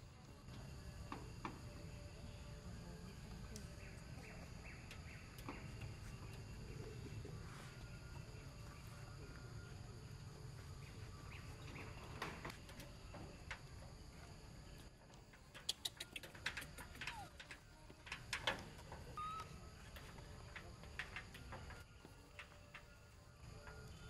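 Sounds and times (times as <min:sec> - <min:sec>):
faint clicks: 0:15.1 - 0:21.8.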